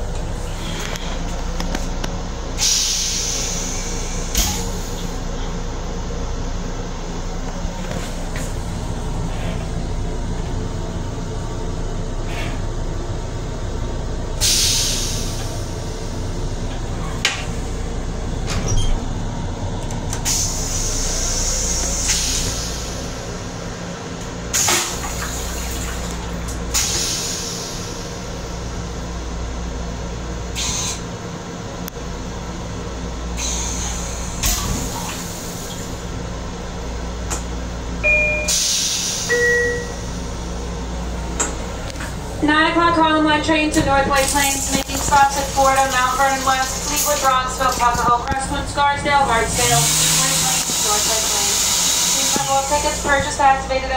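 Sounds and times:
train rumbling: 0.0 - 53.9
toilet flushing: 24.4 - 28.1, 42.7 - 53.9.

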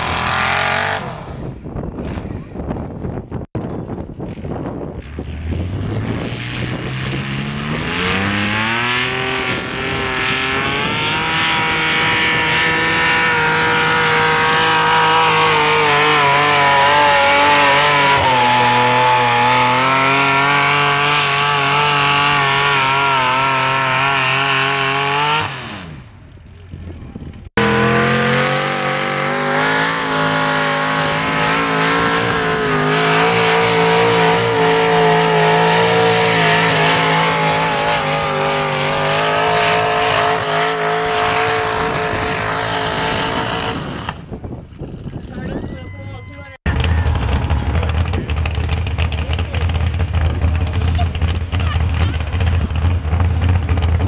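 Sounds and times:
pulling tractor engine revving: 0.0 - 2.4, 4.3 - 45.4, 46.6 - 54.0
second tractor engine at high revs: 0.0 - 2.8, 3.4 - 45.7, 46.6 - 54.0.

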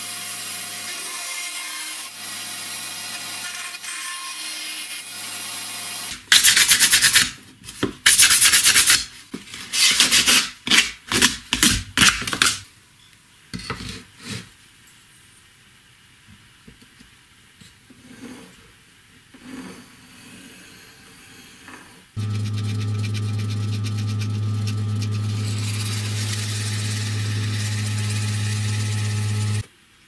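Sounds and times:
abrasive pad scraping pipe: 22.2 - 29.6.

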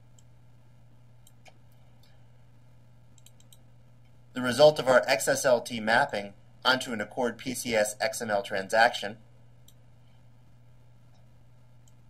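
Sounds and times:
faint low hum: 0.0 - 12.0
soft mouse clicks: 0.1 - 0.3, 1.2 - 2.2, 3.1 - 4.2, 9.6 - 9.8, 11.1 - 12.0.

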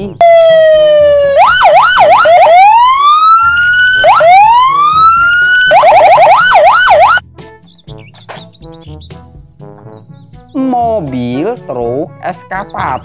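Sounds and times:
police siren wailing and yelping: 0.2 - 7.2.

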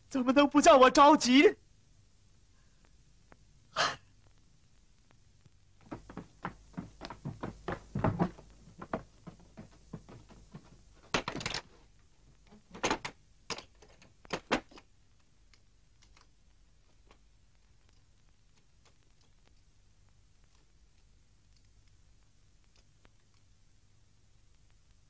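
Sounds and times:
wooden knocks and thuds: 5.8 - 11.7, 12.5 - 14.8.

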